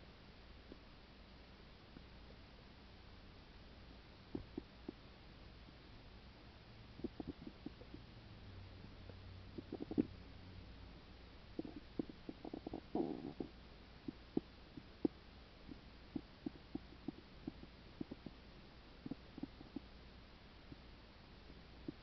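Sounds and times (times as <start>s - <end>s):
stomach gurgle: 4.3s - 5.0s, 7.0s - 8.0s, 9.6s - 10.2s, 11.6s - 18.4s, 19.0s - 19.9s
stomach pops and clicks: 4.3s - 5.0s, 7.0s - 8.0s, 9.6s - 10.2s, 11.6s - 18.4s, 19.0s - 19.9s.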